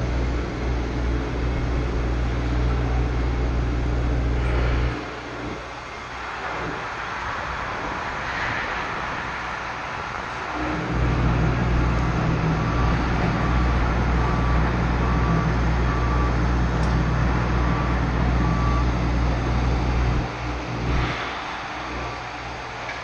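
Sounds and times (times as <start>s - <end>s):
construction machine engine humming: 0.0s - 23.0s
faint beeping alarm: 11.1s - 20.6s.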